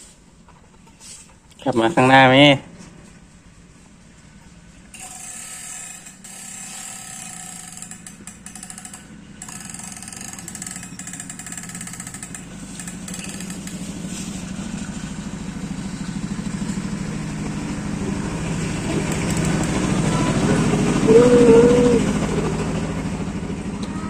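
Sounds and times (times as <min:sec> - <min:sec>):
engine running with fast pulse: 0:02.8 - 0:24.0.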